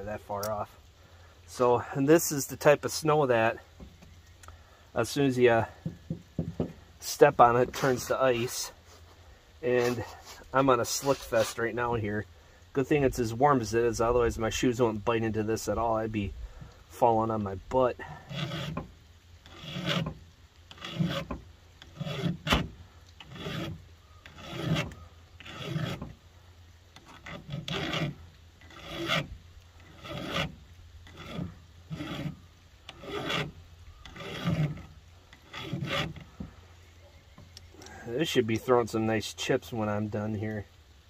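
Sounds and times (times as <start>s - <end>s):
hand file rasping on chainsaw chain: 18.0s - 26.2s, 27.0s - 36.3s.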